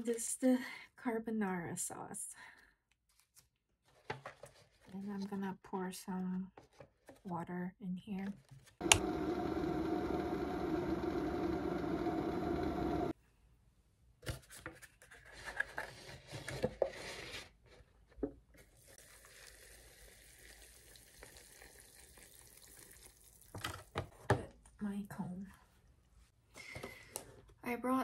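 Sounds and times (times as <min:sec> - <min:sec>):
electric kettle heating water: 0:08.8 - 0:13.2
hot water pouring into cup: 0:18.8 - 0:23.7.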